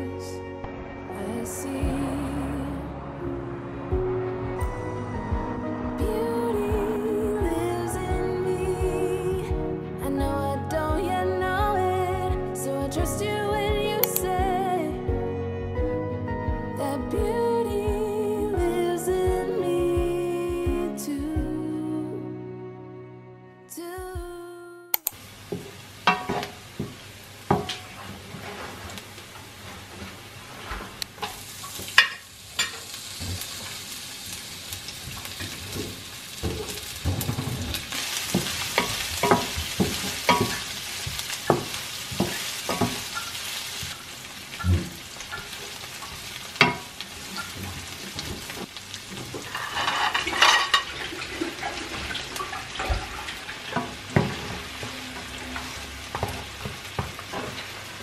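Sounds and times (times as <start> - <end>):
food sizzling in a pan: 25.2 - 58.0.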